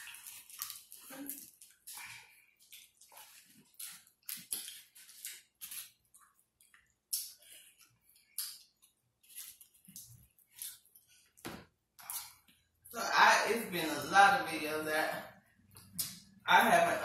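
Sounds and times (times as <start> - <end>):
wet smacking and chewing: 0.0 - 12.9, 15.4 - 16.4.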